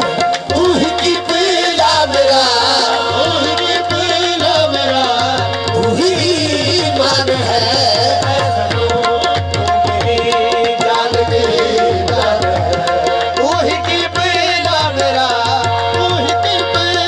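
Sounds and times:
person singing: 0.0s - 9.3s
harmoniums playing: 0.0s - 17.0s
tabla beat: 0.0s - 17.0s.

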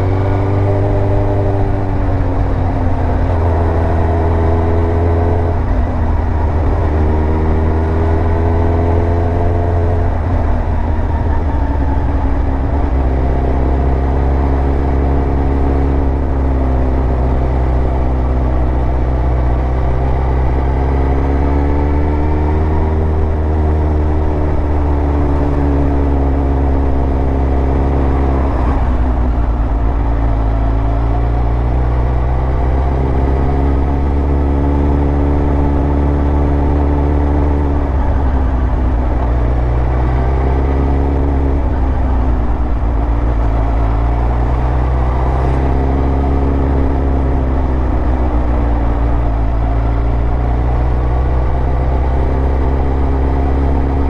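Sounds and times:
low rumble: 24.0s - 51.8s.

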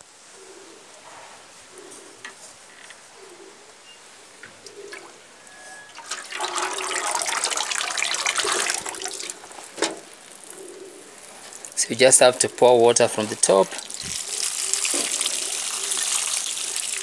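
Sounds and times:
water pouring and splashing: 5.0s - 17.0s.

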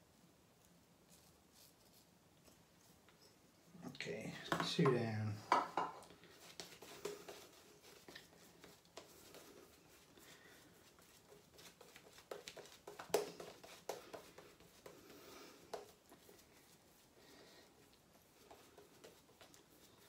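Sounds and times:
shaving brush lathering face: 6.0s - 20.0s.

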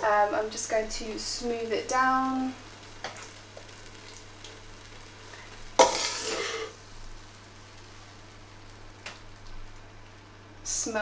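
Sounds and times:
metal spoon scraping a tin: 5.8s - 6.7s.

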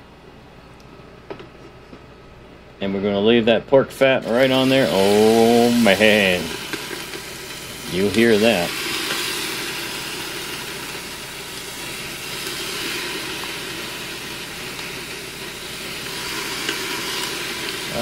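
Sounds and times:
pineapple sizzling on grill: 4.2s - 18.0s.

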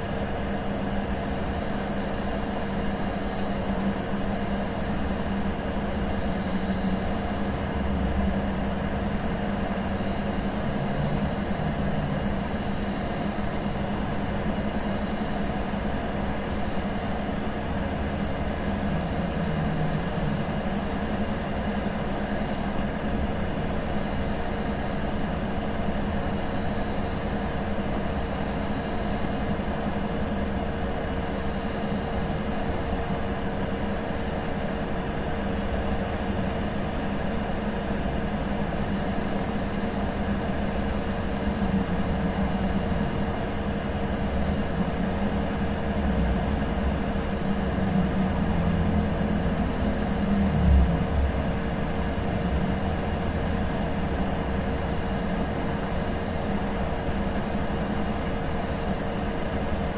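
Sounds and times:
hot air blower hissing: 36.2s - 59.9s
fan humming: 38.2s - 59.9s.

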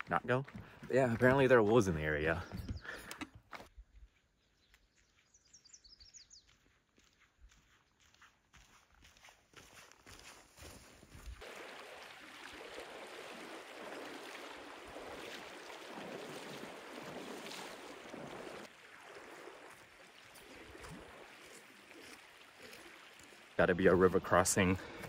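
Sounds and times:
shallow river flowing: 10.2s - 25.0s
splashing from wading: 11.2s - 23.6s.

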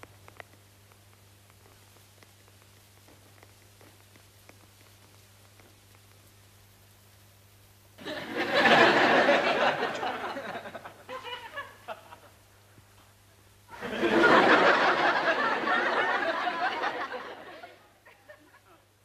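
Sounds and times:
audience laughing: 8.0s - 12.4s, 13.7s - 18.8s.

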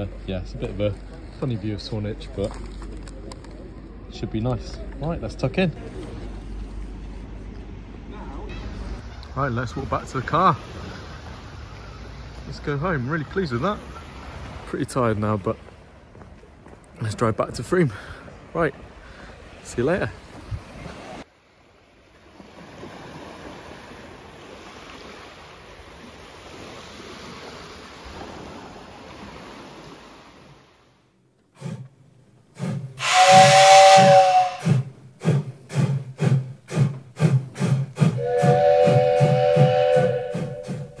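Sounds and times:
small waves washing onto beach: 8.8s - 33.0s
steam locomotive chuffing: 32.5s - 41.0s
steam whistle blast: 32.6s - 41.0s.

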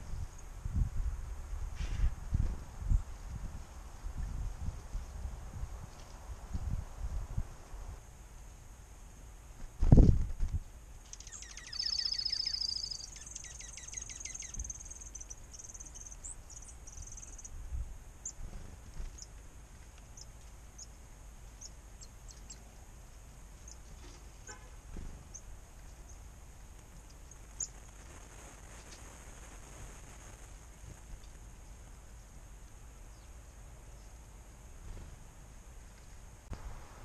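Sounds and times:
outdoor background noise: 0.0s - 37.0s
chickadees calling: 11.0s - 17.6s, 20.1s - 22.8s, 23.6s - 26.3s.

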